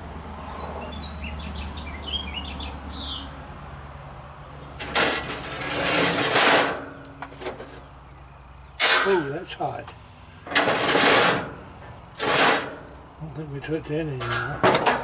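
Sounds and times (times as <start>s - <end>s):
birds chirping: 0.4s - 3.4s, 6.9s - 10.5s
metal grill grate scraping: 4.4s - 7.9s, 10.4s - 13.0s.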